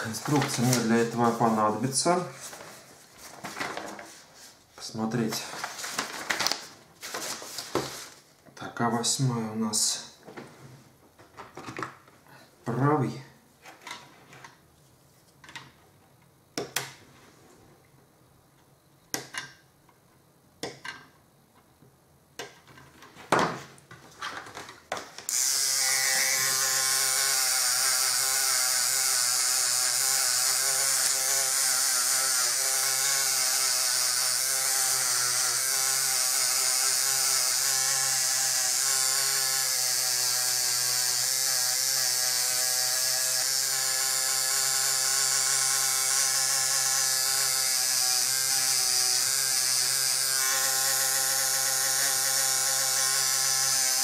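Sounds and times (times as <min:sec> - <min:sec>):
small electric motor humming: 0:25.3 - 0:54.0.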